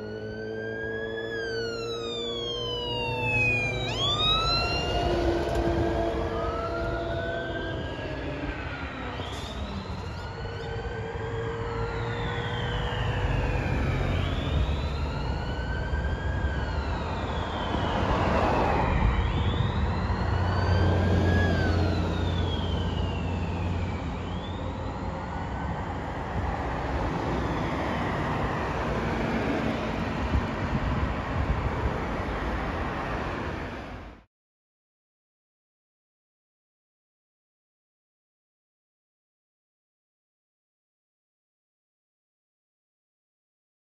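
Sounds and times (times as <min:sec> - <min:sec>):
deep low siren rumble: 0:00.0 - 0:34.3
fire truck sirens wailing: 0:00.0 - 0:34.3
passing traffic: 0:00.0 - 0:34.3.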